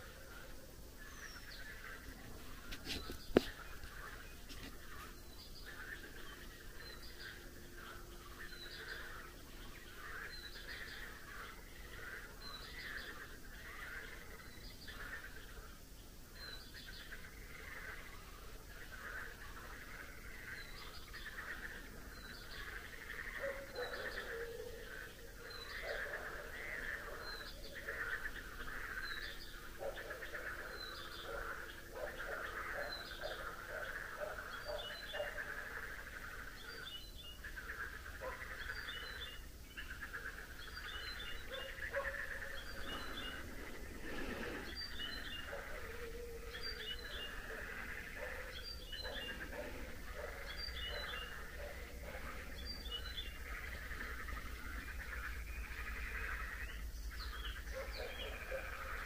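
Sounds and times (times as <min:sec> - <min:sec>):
steady trilling chorus: 0:37.4 - 0:59.0
low animal calls: 0:40.0 - 0:56.6.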